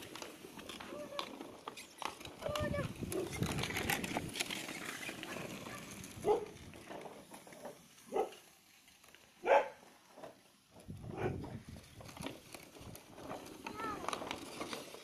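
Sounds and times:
dog barking: 5.7 - 6.5, 8.1 - 8.4, 9.4 - 9.8, 11.1 - 11.4.

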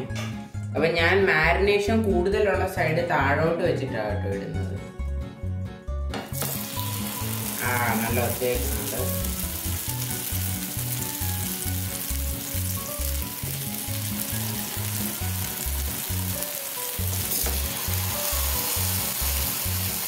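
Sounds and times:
food sizzling in hot oil: 6.3 - 20.0.

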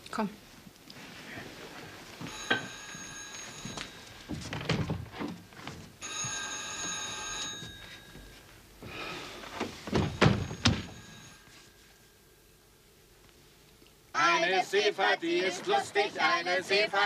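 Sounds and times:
telephone bell ringing: 2.2 - 4.5, 6.0 - 8.5, 10.0 - 12.2
door thuds: 9.9 - 11.0.

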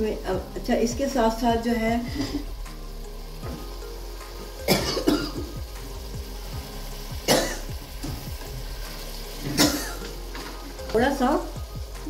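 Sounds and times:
person coughing: 4.7 - 5.6, 7.3 - 7.7, 9.5 - 10.0.

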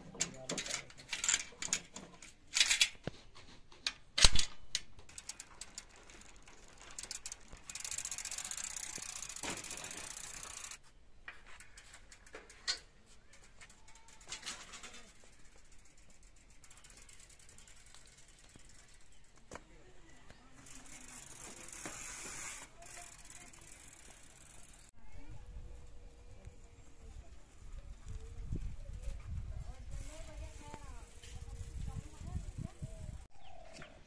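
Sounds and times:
key turning in bicycle lock: 0.2 - 3.0
lock clacking open: 3.9 - 4.9.

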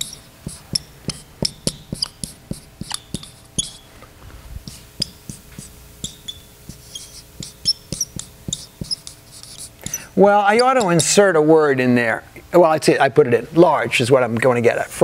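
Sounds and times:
marker writing on whiteboard: 0.0 - 3.9, 4.6 - 11.2.

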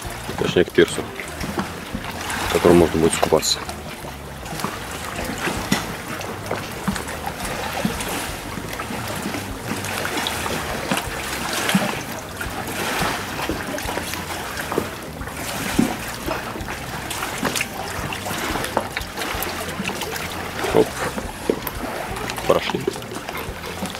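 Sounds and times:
waves lapping against pier: 0.0 - 23.9.

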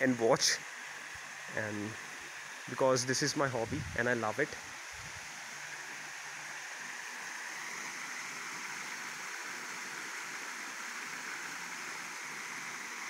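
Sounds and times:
water splashing down small waterfall: 4.5 - 13.0.

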